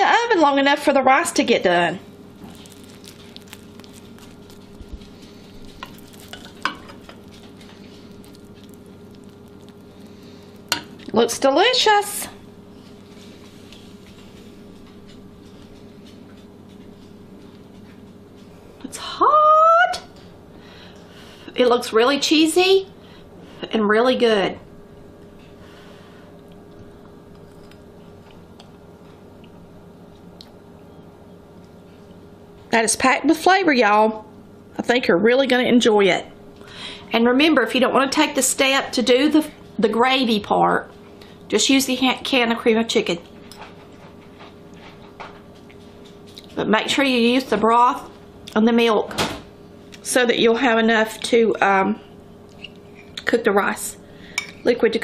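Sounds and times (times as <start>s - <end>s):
steady low hum: 0.0s - 55.0s
person chewing soft food: 2.3s - 11.1s.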